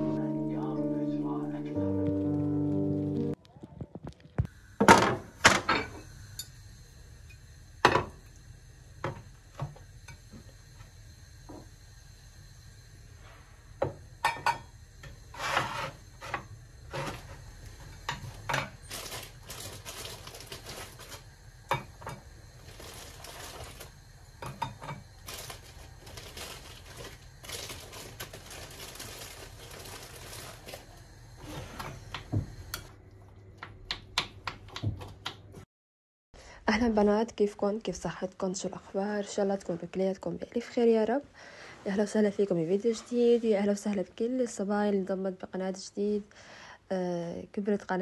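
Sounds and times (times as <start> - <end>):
rustling and scraping: 15.3 - 17.5, 25.2 - 32.1.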